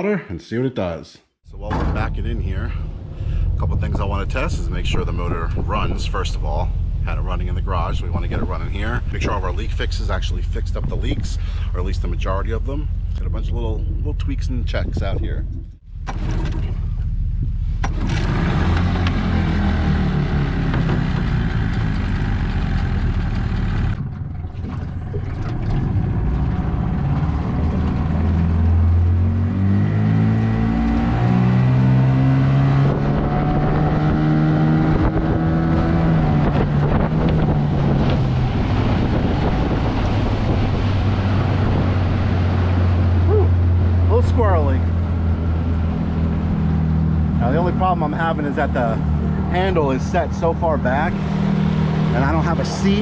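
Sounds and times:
outboard motor running: 0:17.8 - 0:31.0, 0:32.9 - 0:53.0.

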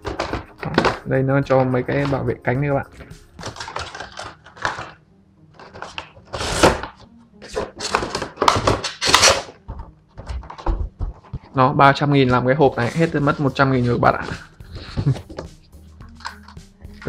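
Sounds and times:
plastic tray crinkling and knocking: 0:00.0 - 0:02.3, 0:03.0 - 0:05.0, 0:05.6 - 0:11.6.

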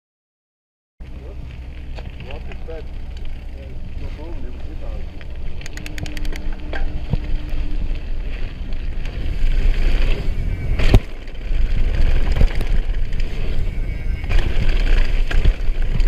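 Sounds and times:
tyres rattling on gravel: 0:01.1 - 0:16.0
wind buffeting microphone: 0:02.1 - 0:16.0
rapid clicks: 0:05.5 - 0:06.5.

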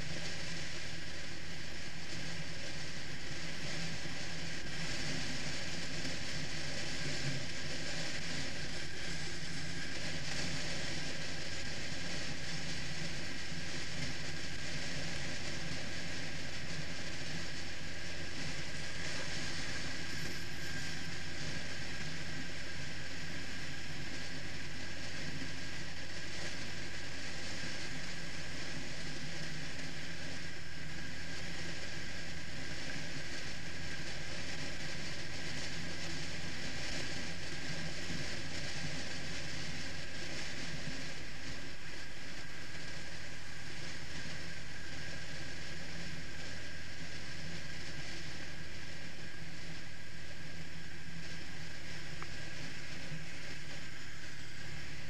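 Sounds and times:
wind and road noise: 0:00.0 - 0:55.0.

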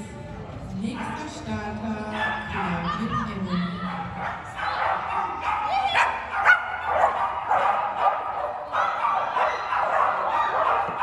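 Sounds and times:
dog barking: 0:02.1 - 0:02.6, 0:03.9 - 0:11.0.

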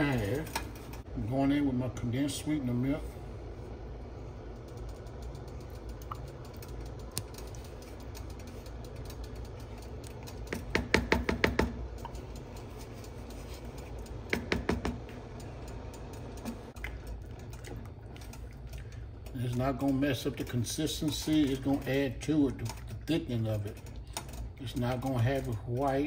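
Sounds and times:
steady low hum: 0:00.0 - 0:26.0
utensil clicking against pot: 0:04.6 - 0:26.0.

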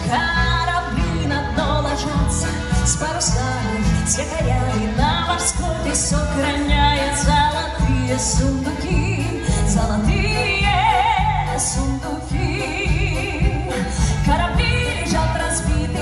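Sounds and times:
woman singing with vibrato: 0:00.0 - 0:16.0.

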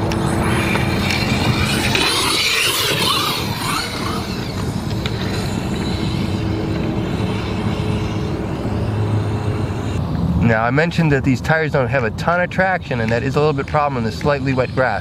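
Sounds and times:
high electric motor whine: 0:00.0 - 0:10.4
steady rushing noise: 0:00.0 - 0:15.0.

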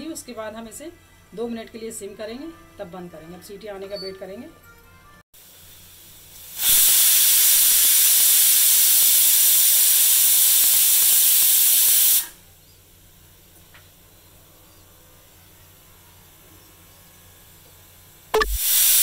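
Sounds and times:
pressure cooker whistle hiss: 0:05.5 - 0:12.4, 0:18.4 - 0:19.0.

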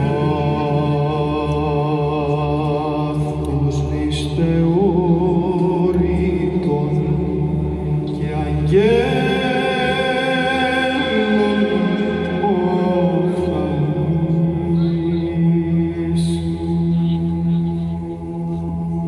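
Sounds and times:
male choir chanting: 0:00.0 - 0:17.9.

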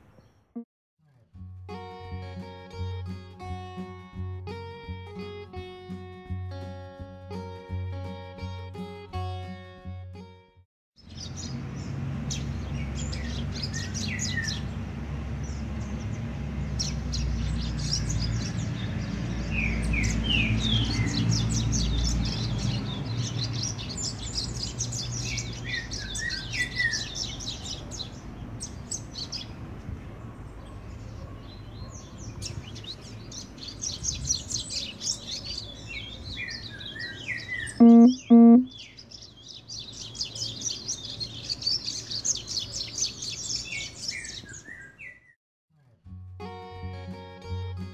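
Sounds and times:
birds twittering song: 0:00.0 - 0:00.6, 0:11.0 - 0:45.4
buzzy horn blasts: 0:37.8 - 0:38.7.

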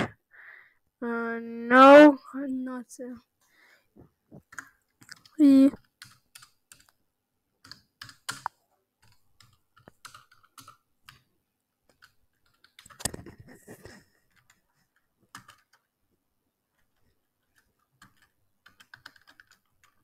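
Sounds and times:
computer keyboard typing: 0:04.5 - 0:07.0, 0:07.6 - 0:11.3, 0:11.9 - 0:13.4, 0:14.2 - 0:15.9, 0:16.7 - 0:20.0.

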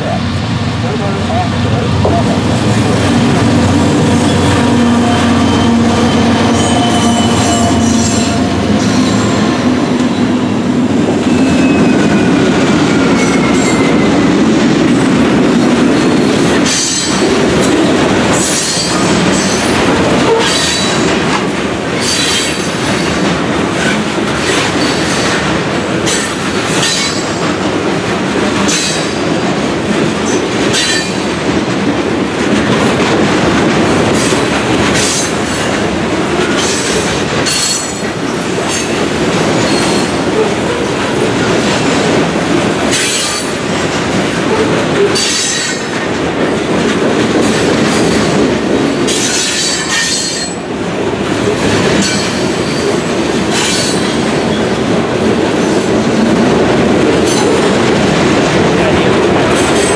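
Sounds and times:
diesel locomotives passing: 0:00.0 - 0:59.9
train wheels clacking: 0:00.9 - 0:59.9
wheel flanges squealing: 0:03.7 - 0:09.4.

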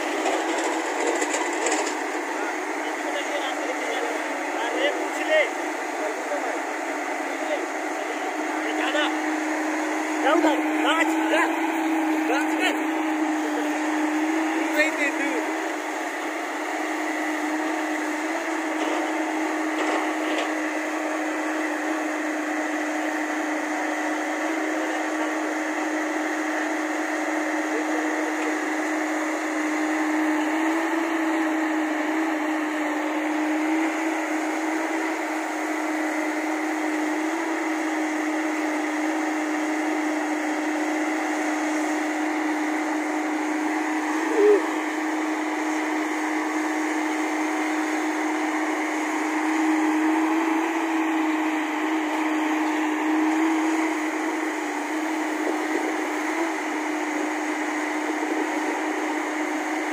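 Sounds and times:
excavator diesel engine drone: 0:00.0 - 0:59.9.

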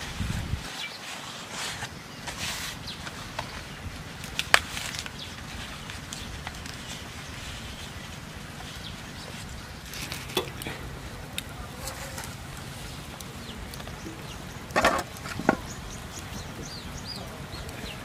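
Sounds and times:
leaves being handled: 0:00.0 - 0:18.0
vegetables set on metal grate: 0:10.0 - 0:10.8.

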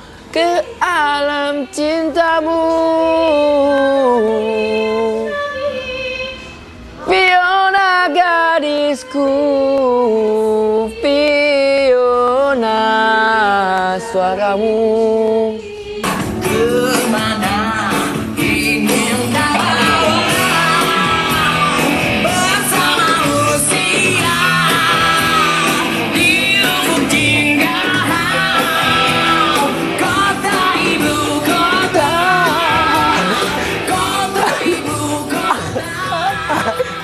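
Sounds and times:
person singing alone: 0:07.0 - 0:37.0
rock song with band and singer: 0:16.0 - 0:37.0.

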